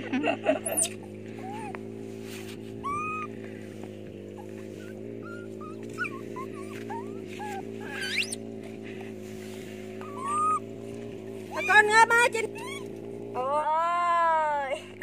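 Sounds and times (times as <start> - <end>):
low hum: 0.0 - 15.0
high whimpering squeaks: 0.6 - 1.8, 2.4 - 3.3, 4.3 - 8.5, 10.0 - 10.7, 11.5 - 12.9.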